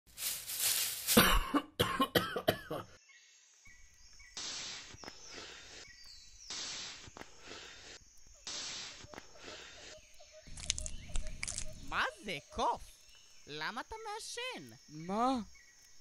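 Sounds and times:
long hissing breaths: 5.2s - 5.9s, 7.2s - 8.1s, 9.2s - 10.0s.

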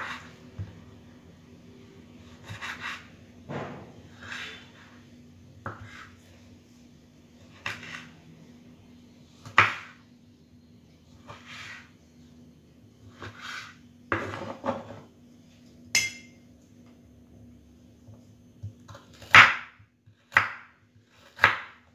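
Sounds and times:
knife cutting on wooden board: 2.4s - 3.1s, 5.6s - 6.2s, 7.5s - 8.1s, 13.1s - 14.9s.

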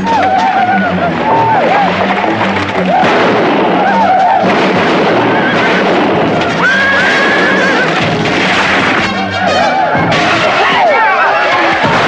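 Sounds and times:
horses splashing through river: 0.0s - 3.8s
film music score: 0.0s - 12.0s.

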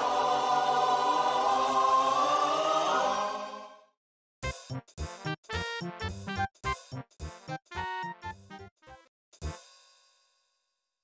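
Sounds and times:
bouncy background music: 4.4s - 9.8s.

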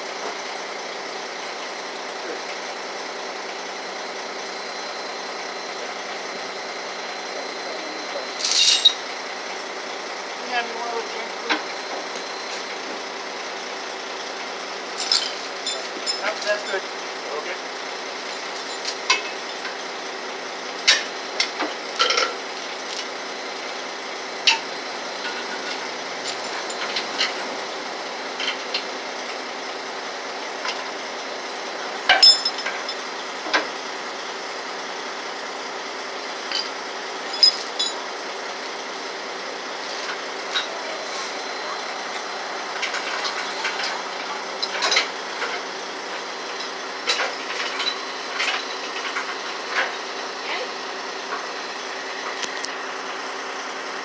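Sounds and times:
truck engine idling: 0.0s - 54.0s
steel chains clanking: 8.2s - 9.1s, 15.0s - 16.8s, 17.4s - 19.7s, 20.8s - 28.9s, 32.1s - 33.0s, 36.3s - 38.0s, 39.8s - 41.0s, 41.8s - 45.6s, 46.5s - 52.0s.

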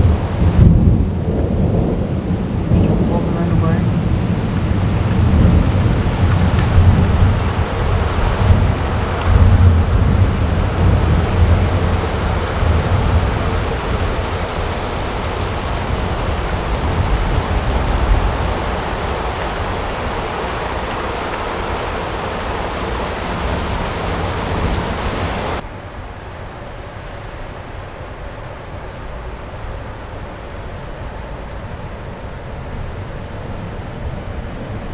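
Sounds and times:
thunder rumbling: 0.0s - 25.6s
heavy rain pouring: 0.0s - 34.9s.

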